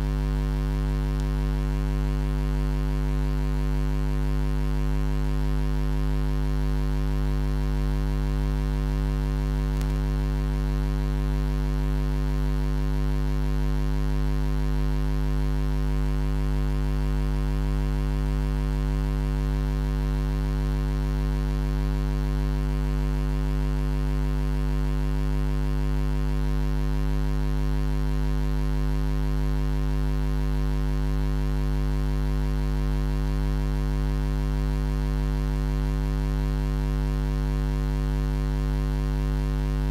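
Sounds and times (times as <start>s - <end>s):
electrical mains hum: 0.0s - 5.2s, 6.0s - 27.0s, 39.1s - 39.9s.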